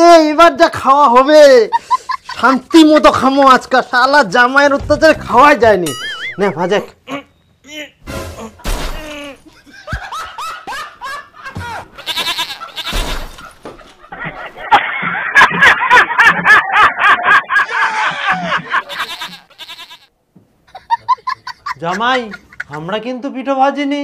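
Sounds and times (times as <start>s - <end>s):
laughter: 1.7s - 3.0s, 5.9s - 6.4s, 8.4s - 19.4s, 20.7s - 22.9s
bleating animal calls: 12.0s - 13.2s, 18.8s - 20.1s.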